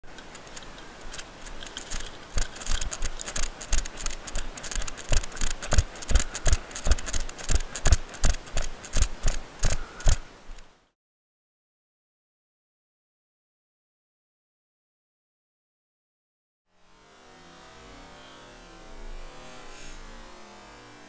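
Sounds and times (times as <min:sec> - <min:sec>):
brush and clothing rustling: 0:00.0 - 0:10.7.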